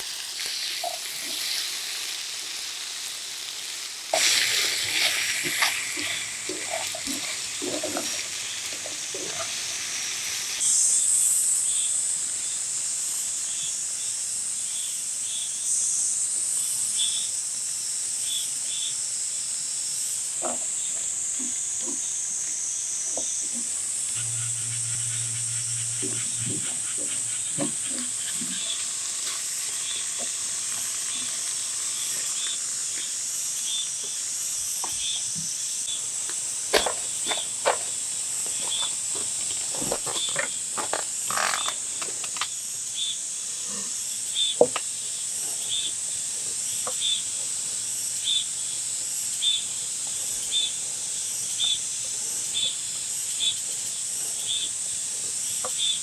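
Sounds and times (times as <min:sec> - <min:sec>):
chicken sizzling in a frying pan: 0:00.0 - 0:13.9, 0:23.6 - 0:35.2
glaze bubbling ticks: 0:04.1 - 0:10.6, 0:23.2 - 0:33.2.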